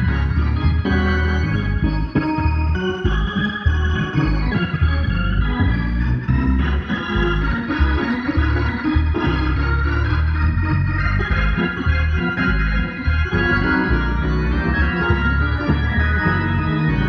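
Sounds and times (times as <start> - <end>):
organ playing chords: 0.0 - 17.0.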